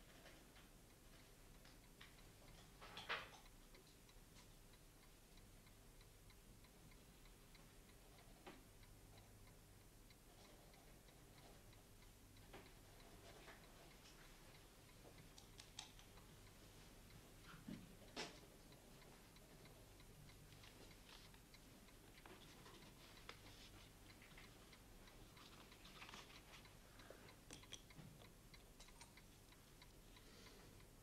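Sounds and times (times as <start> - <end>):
clock ticking: 0.0 - 31.0
soft rustle: 20.4 - 27.3.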